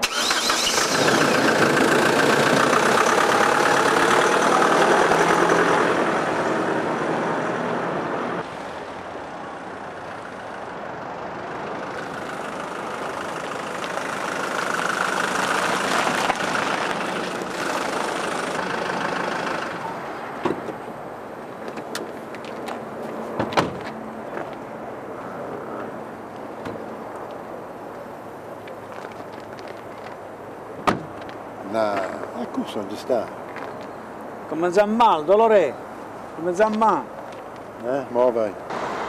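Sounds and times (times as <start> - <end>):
car engine running: 1.0 - 7.0.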